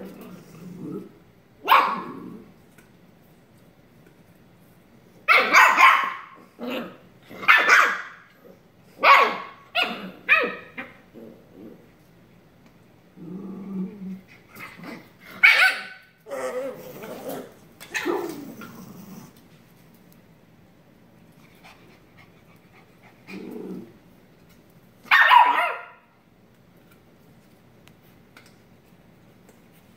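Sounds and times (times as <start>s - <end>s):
dog growling: 0.0s - 1.2s, 2.0s - 2.6s, 6.4s - 7.5s, 9.8s - 11.9s, 13.2s - 15.4s, 16.2s - 19.4s, 23.0s - 24.0s
dog barking: 1.6s - 2.1s, 5.3s - 6.4s, 7.4s - 8.2s, 9.0s - 10.7s, 15.4s - 16.0s, 25.1s - 26.1s.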